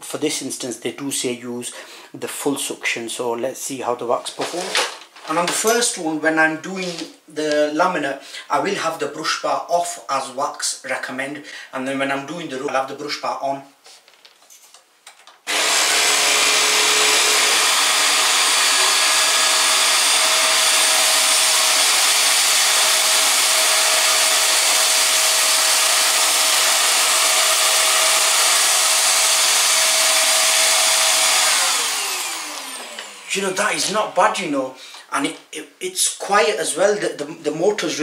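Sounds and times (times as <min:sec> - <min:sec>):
vacuum cleaner running: 0:15.5 - 0:33.9
vacuum motor winding down: 0:15.5 - 0:33.9.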